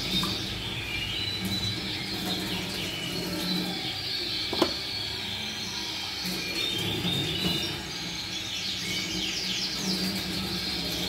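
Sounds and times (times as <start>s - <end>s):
tap water running into sink: 0.0s - 0.7s, 4.5s - 4.8s
canaries chirping and singing: 0.0s - 11.0s.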